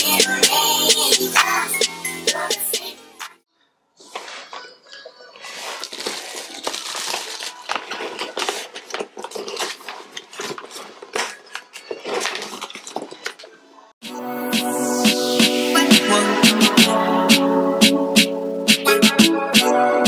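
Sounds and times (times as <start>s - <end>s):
cardboard packaging rustling: 4.0s - 13.7s
small items knocked and set down: 5.8s - 13.6s.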